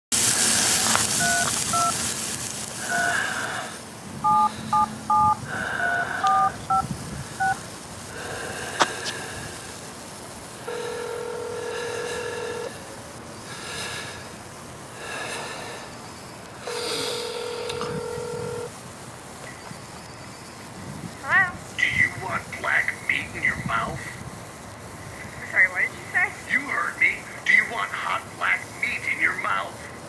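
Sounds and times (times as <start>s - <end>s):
phone keypad dialing beeps: 1.2s - 1.9s, 2.9s - 3.2s, 4.2s - 6.8s, 7.4s - 7.6s, 17.3s - 18.7s
phone ringback tone: 1.2s - 1.9s, 2.8s - 3.3s, 4.2s - 6.8s, 7.4s - 7.6s, 10.6s - 12.7s, 16.6s - 18.7s.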